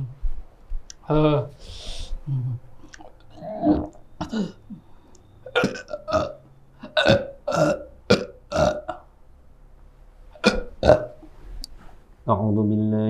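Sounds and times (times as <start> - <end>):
man belching: 3.3 - 4.8, 5.5 - 9.1, 10.4 - 11.2.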